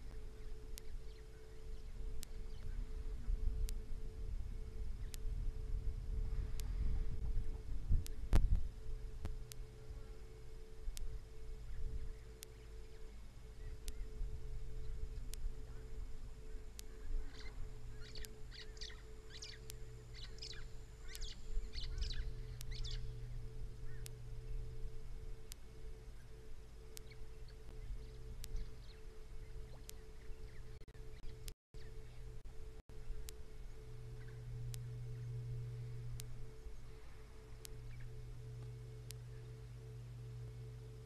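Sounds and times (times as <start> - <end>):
faint hum: 0.0 - 41.0
low outdoor rumble: 0.0 - 41.0
bird high sharp calls: 16.8 - 24.7.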